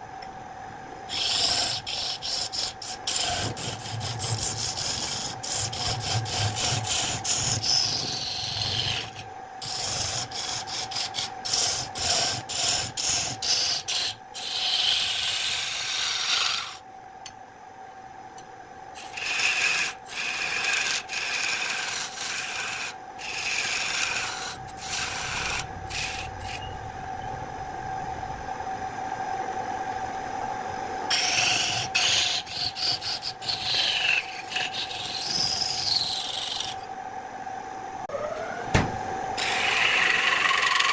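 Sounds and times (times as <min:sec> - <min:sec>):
lathe motor hum: 0:01.1 - 0:16.8, 0:19.0 - 0:26.6, 0:30.8 - 0:36.9, 0:38.1 - 0:40.9
turning tool scraping wood: 0:01.1 - 0:16.8, 0:19.0 - 0:26.7, 0:31.1 - 0:36.8, 0:39.4 - 0:40.9.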